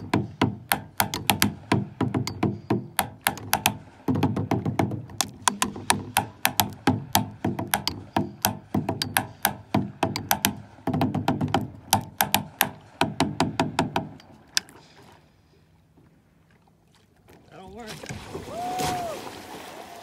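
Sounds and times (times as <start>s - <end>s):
drumsticks beating on hollow board: 0.0s - 14.7s.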